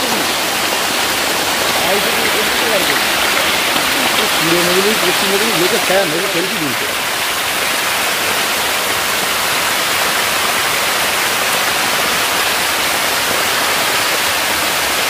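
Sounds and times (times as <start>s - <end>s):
fish splashing in water: 0.0s - 10.2s
water spraying from a pipe: 0.0s - 15.0s.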